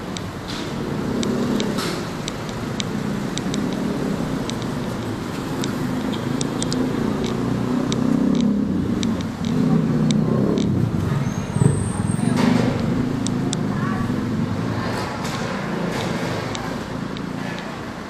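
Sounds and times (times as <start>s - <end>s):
car engines running: 0.0s - 18.0s
light clicks: 0.1s - 10.8s.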